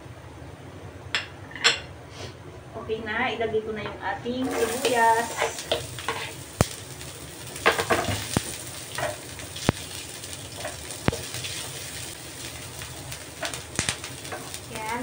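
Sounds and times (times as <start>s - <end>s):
onion and garlic sizzling in oil: 4.4s - 15.0s
spatula scraping and tapping pan: 4.5s - 6.8s, 7.6s - 9.8s, 10.6s - 11.6s, 13.4s - 14.6s.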